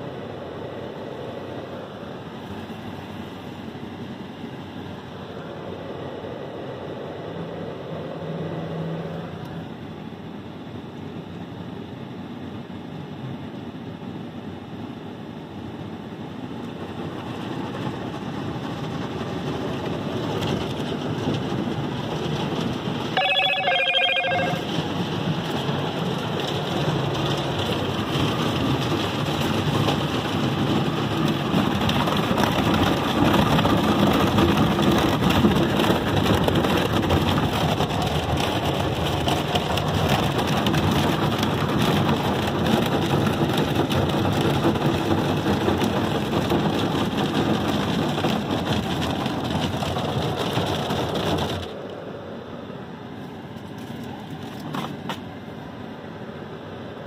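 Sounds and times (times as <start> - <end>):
short ringing tone: 23.2 - 24.8
water spraying on car: 24.7 - 55.6.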